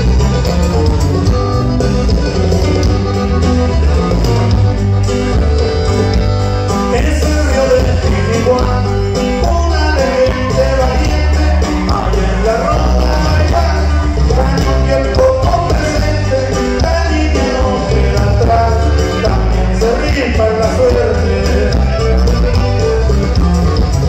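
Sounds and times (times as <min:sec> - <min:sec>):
live band playing dance music: 0:00.0 - 0:24.0
person singing: 0:06.8 - 0:22.2.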